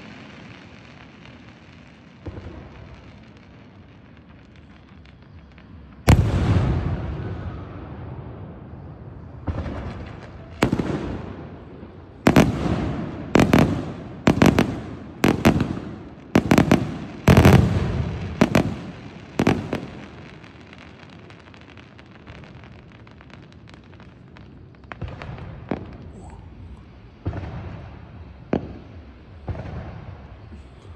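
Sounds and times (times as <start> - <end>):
faint firework crackles: 0.0 - 30.9
firework shells bursting: 9.6 - 20.9.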